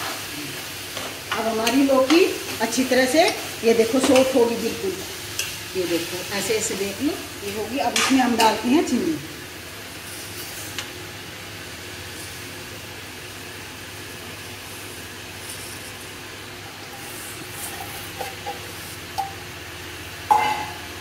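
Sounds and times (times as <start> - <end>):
low hum and hiss: 0.2 - 21.0
metal spoon clinking on pan: 20.3 - 20.8.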